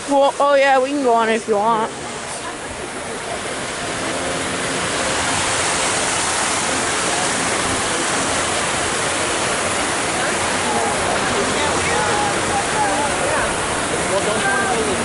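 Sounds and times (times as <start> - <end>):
steady rushing noise: 0.0 - 15.0.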